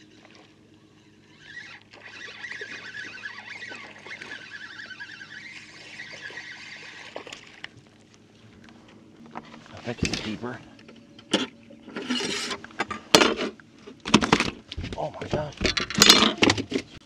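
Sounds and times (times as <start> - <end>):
fishing reel whirring: 0.0 - 7.7.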